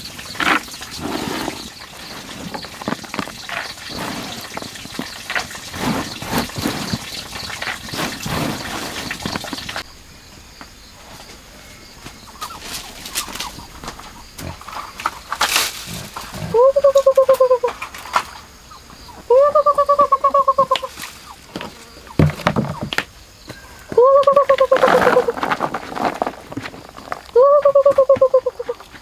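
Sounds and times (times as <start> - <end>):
hands mixing wet feed in bucket: 0.0 - 9.8, 24.0 - 29.0.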